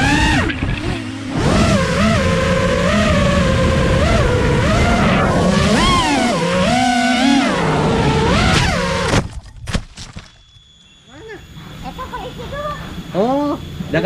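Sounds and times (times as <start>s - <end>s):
drone hitting the ground: 0.0s - 3.4s
drone motors whining: 0.0s - 14.0s.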